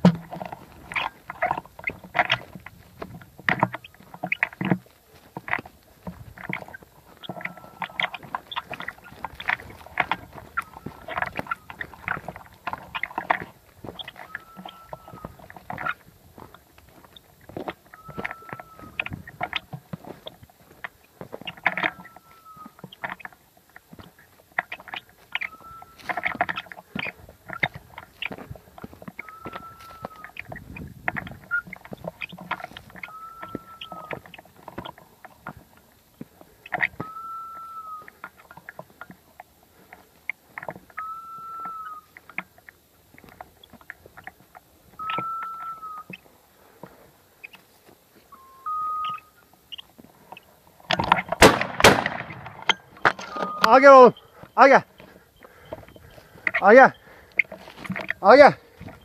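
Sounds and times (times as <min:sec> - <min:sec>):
dog paws scuffing: 0:00.0 - 0:23.2
rustling of twigs and grass: 0:00.0 - 0:59.0
short high beep: 0:33.1 - 0:34.1, 0:45.0 - 0:46.1, 0:48.3 - 0:49.3, 0:53.1 - 0:54.3.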